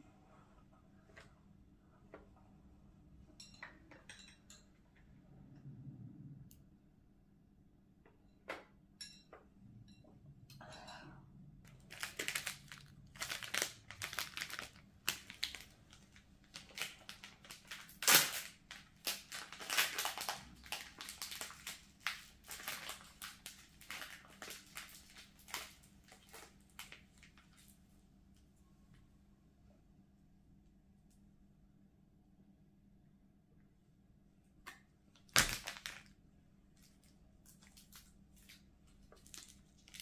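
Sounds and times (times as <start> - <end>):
plastic wrapper crinkling: 11.7 - 27.7, 35.2 - 36.1, 36.8 - 40.0.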